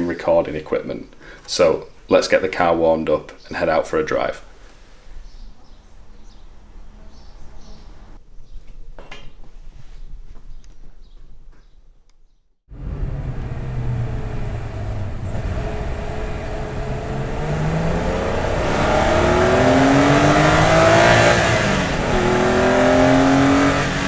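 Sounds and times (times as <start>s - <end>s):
car engine accelerating: 12.7s - 24.0s.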